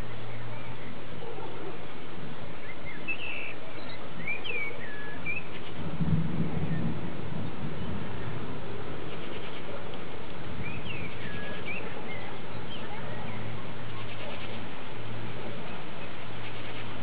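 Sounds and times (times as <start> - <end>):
rain falling: 0.0 - 17.0
bird chirps: 2.6 - 5.7.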